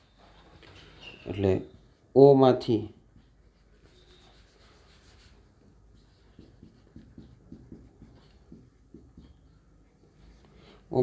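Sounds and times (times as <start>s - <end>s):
marker pen squeaking on whiteboard: 0.0s - 2.0s, 3.2s - 9.7s.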